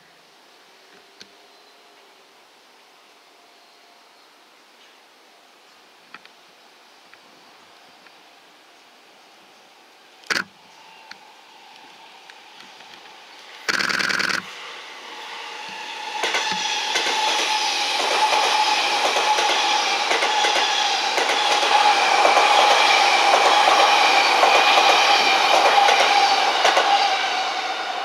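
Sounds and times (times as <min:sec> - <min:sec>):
electric train whine: 0:00.0 - 0:28.0
train wheels clacking over rail joints: 0:13.7 - 0:14.5, 0:15.7 - 0:27.2.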